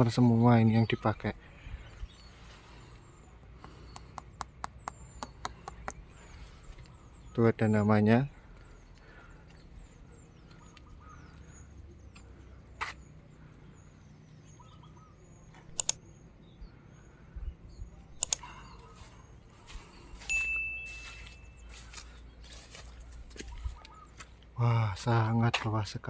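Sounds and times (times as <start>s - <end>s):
small birds chirping: 0.0s - 26.0s
sharp clicks: 3.6s - 6.1s, 15.5s - 16.1s, 18.1s - 18.6s
steady high tone: 20.1s - 22.0s.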